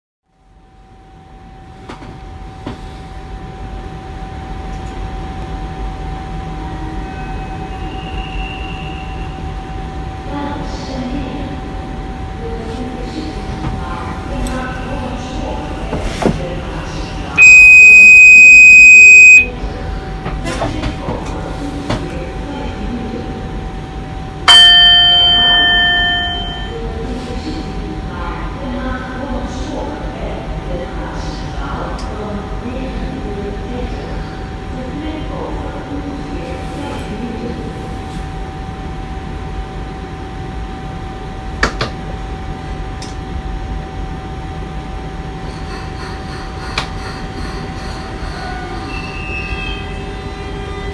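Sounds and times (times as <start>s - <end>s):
electric locomotive humming: 1.1s - 36.5s, 38.5s - 50.9s
high-pitched alarm tone: 17.4s - 19.5s, 24.8s - 26.8s
multi-tone chime: 24.5s - 26.8s.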